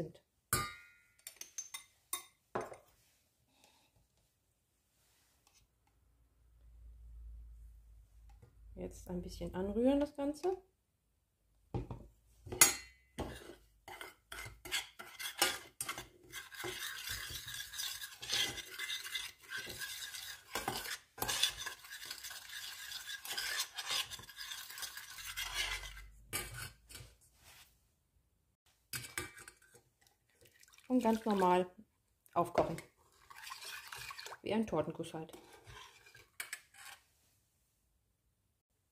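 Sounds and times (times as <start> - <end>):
spoon clinking against a pan: 0.5 - 2.4, 12.6 - 13.1
metal spoon scraping a saucepan: 12.6 - 27.2, 28.9 - 30.1, 32.5 - 37.1.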